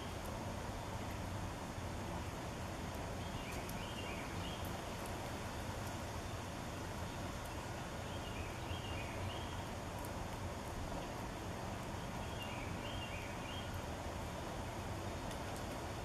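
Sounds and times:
songbird whistling: 0:12.2 - 0:13.7.

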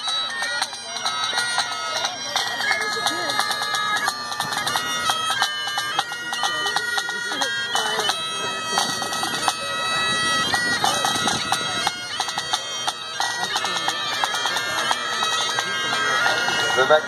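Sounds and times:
bagpipes playing a marching tune: 0:00.0 - 0:17.0.

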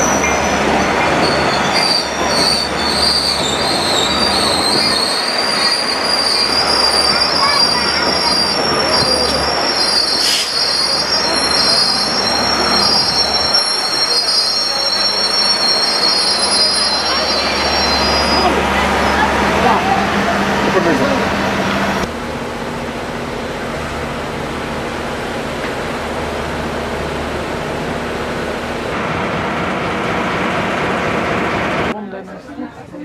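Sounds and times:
train wheels squealing on rails: 0:00.0 - 0:19.3
rumble of rolling train cars: 0:00.0 - 0:33.0.

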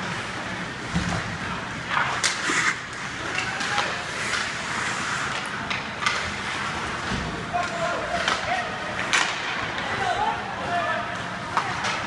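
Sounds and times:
hockey sticks clattering: 0:01.0 - 0:12.0
skate blades scraping ice: 0:01.9 - 0:07.0.

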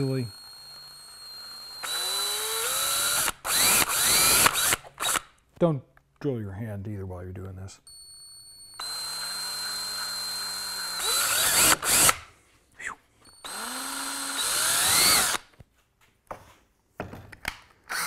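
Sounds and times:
drill motor whining: 0:00.0 - 0:05.3, 0:08.8 - 0:12.3, 0:13.4 - 0:15.5.

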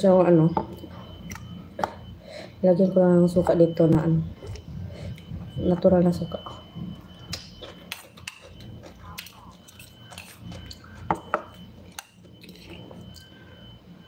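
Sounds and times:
chewing: 0:07.0 - 0:13.4.

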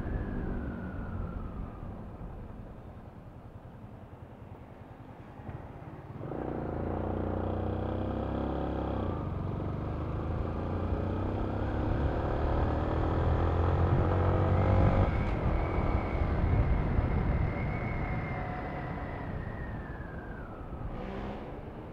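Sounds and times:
road noise: 0:00.0 - 0:21.9
motorcycle engine accelerating: 0:06.2 - 0:21.9.

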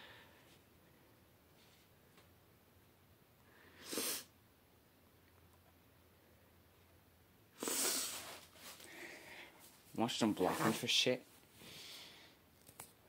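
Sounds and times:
faint room tone: 0:00.0 - 0:13.0
sharp breath close to microphone: 0:11.6 - 0:12.4.

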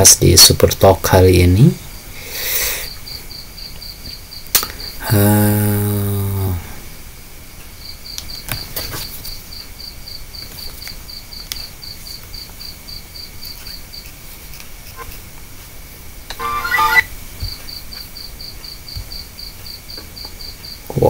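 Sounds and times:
cricket chirping: 0:01.8 - 0:14.2, 0:16.4 - 0:21.0
man humming: 0:05.0 - 0:06.8.

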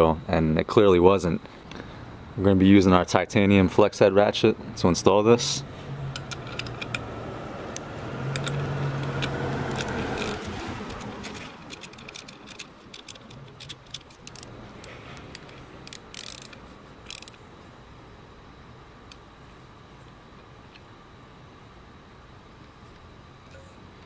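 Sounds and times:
low steady hum: 0:00.0 - 0:24.0
ratchet clicking: 0:06.1 - 0:07.1, 0:07.8 - 0:17.4.

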